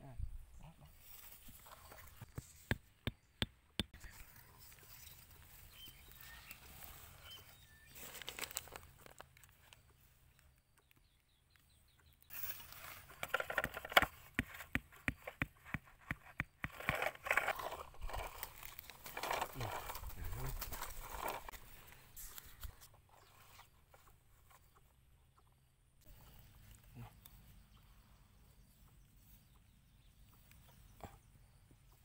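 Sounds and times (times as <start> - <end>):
hands rustling in grass and soil: 0.9 - 3.2, 4.0 - 10.5, 14.0 - 24.5
sharp clicks and taps: 2.3 - 4.0.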